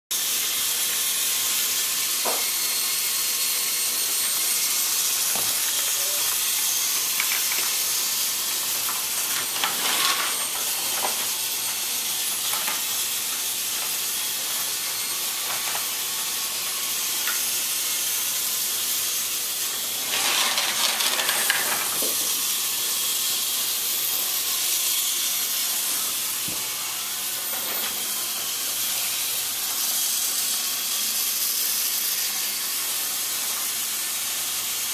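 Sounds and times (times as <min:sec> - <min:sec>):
high-pitched hiss: 0:01.6 - 0:09.4.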